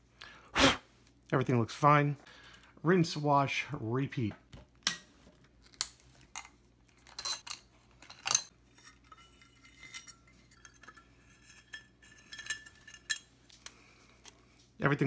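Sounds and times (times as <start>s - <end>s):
metal clicks and clinks: 6.3s - 13.8s
light metal scraping: 7.0s - 13.5s.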